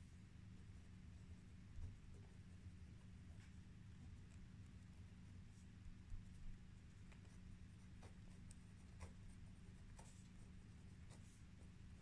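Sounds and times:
pen scratching on paper: 7.0 - 12.0.

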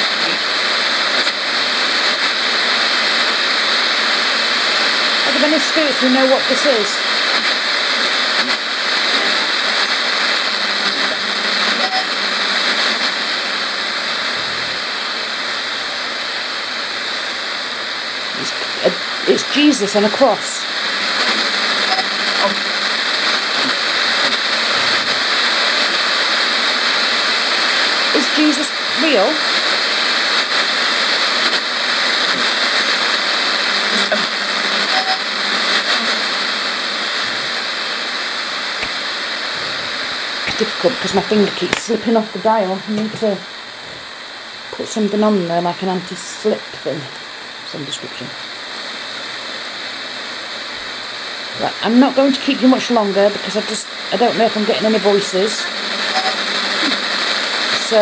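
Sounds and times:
radio signal blips: 0.0 - 58.0
radio static hiss: 0.0 - 58.0.

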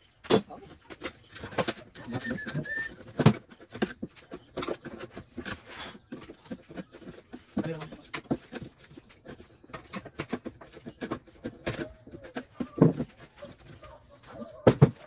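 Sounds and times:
faint high whistle-like tone: 2.2 - 2.9.

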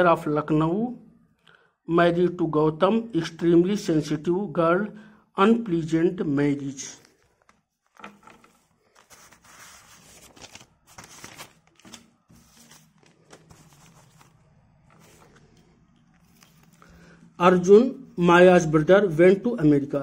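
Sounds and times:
paper rustling: 7.0 - 17.1.

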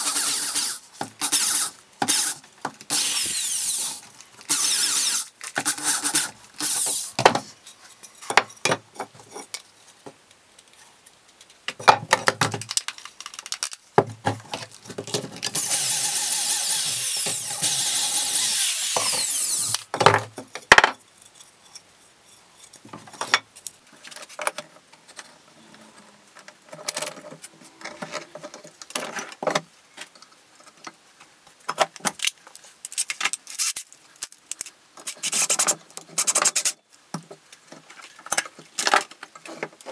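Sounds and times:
cordless drill boring into wood: 0.0 - 7.1, 15.6 - 19.8.

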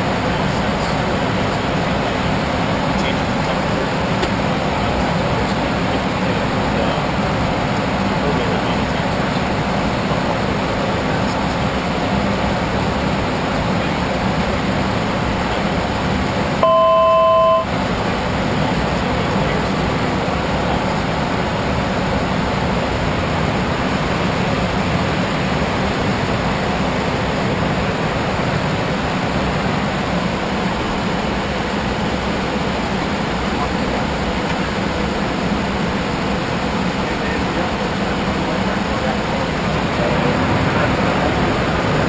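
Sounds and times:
rushing cockpit cabin noise: 0.0 - 42.0
electronic tone: 16.6 - 17.7.

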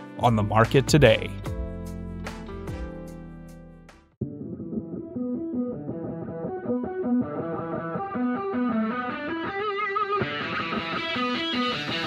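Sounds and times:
picked guitar music: 4.2 - 12.0.

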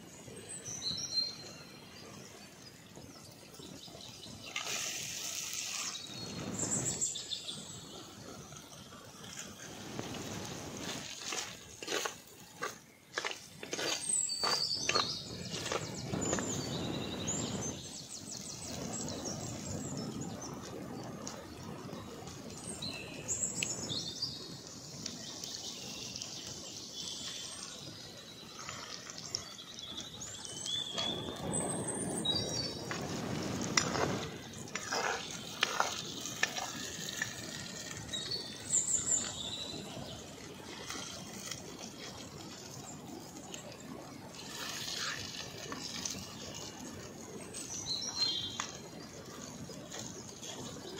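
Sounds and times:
outdoor background noise: 0.0 - 50.9
birds chirping: 0.1 - 50.9
ladle scraping clay pot: 9.9 - 16.5, 32.9 - 38.6.

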